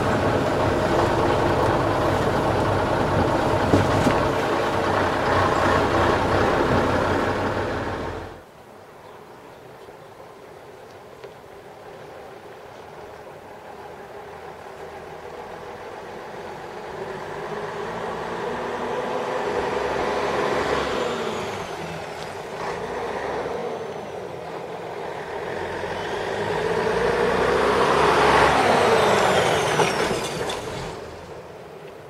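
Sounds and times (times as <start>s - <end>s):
diesel truck engine running: 0.0s - 8.4s
high engine whine: 0.0s - 8.4s, 13.2s - 31.7s.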